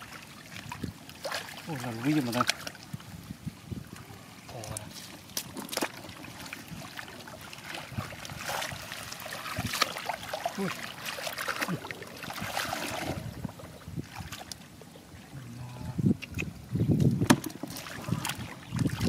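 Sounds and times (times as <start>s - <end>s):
hands splashing in muddy water: 5.3s - 13.4s.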